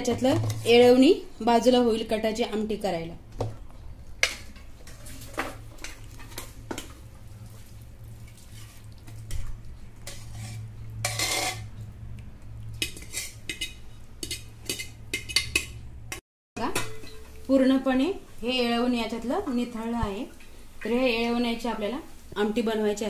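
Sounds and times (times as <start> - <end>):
metal spoon scraping and clinking: 10.1 - 11.7, 12.8 - 15.8.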